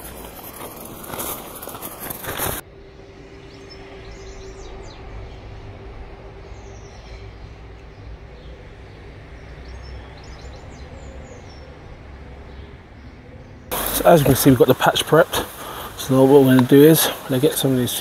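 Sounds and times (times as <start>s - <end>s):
dry straw rustling and crackling: 0.0s - 2.6s, 13.7s - 18.0s
distant traffic rumble: 0.0s - 18.0s.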